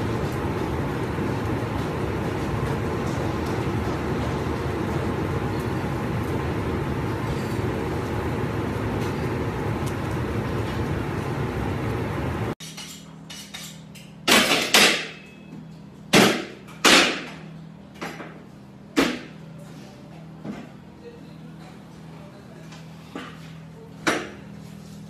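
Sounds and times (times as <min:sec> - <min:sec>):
steady loud noise: 0:00.0 - 0:12.6.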